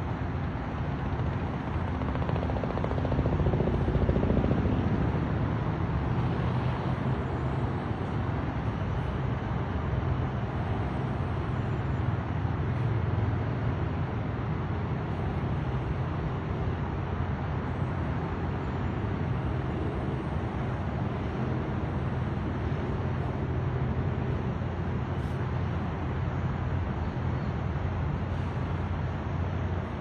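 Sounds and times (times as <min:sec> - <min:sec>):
helicopter flying past: 0:00.0 - 0:30.0.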